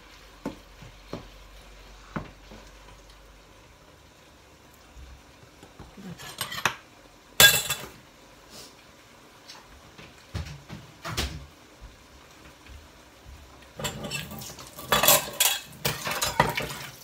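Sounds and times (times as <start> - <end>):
spatula scraping a frying pan: 6.1 - 6.8, 13.8 - 17.0.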